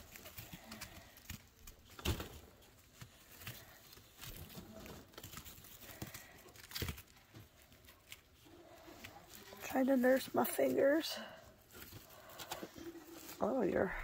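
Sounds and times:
rustling wood-shaving bedding: 0.0s - 14.0s.

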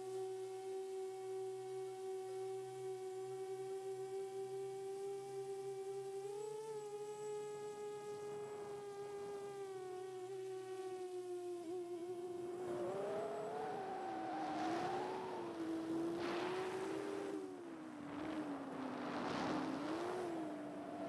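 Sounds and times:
drone propellers humming: 9.8s - 21.0s.

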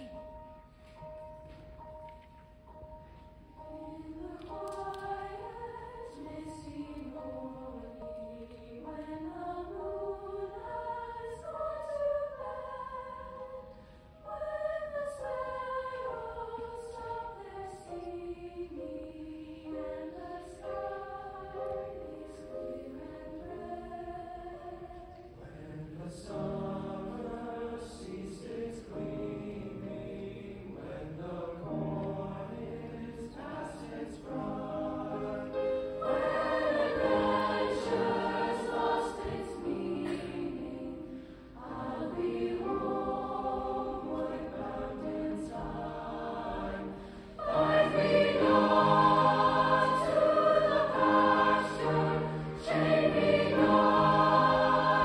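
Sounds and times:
mixed choir singing: 0.0s - 0.7s, 3.6s - 55.0s
piano accompaniment: 0.0s - 55.0s.

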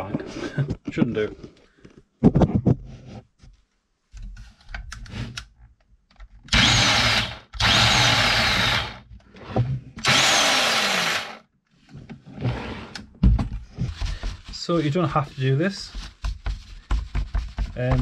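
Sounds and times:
electric hedge trimmer running: 6.5s - 9.0s, 10.0s - 11.4s.

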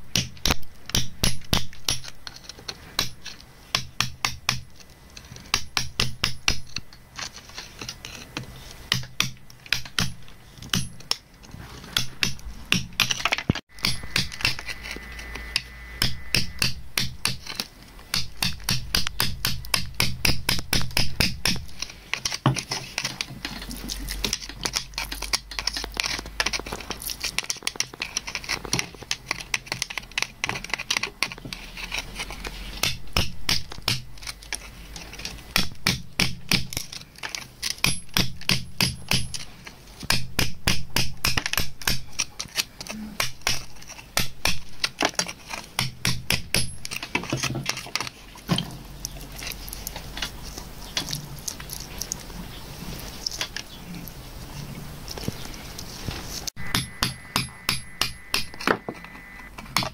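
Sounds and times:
metal blade scraping rock: 13.0s - 18.9s, 21.5s - 33.0s, 33.9s - 35.7s.

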